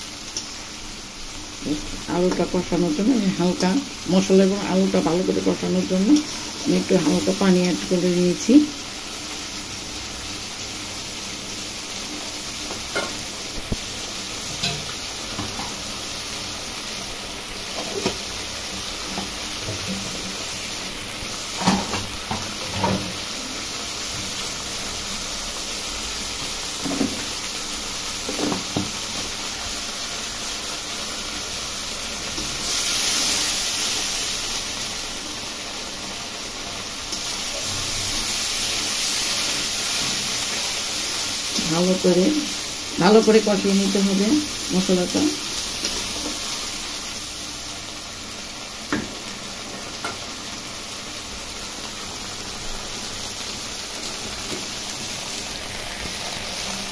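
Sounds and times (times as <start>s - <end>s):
food sizzling in a wok: 0.0s - 56.9s.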